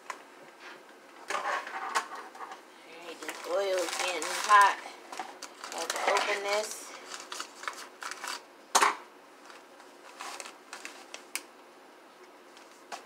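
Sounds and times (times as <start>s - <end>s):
plastic bag rustling: 3.0s - 8.5s, 9.4s - 11.4s.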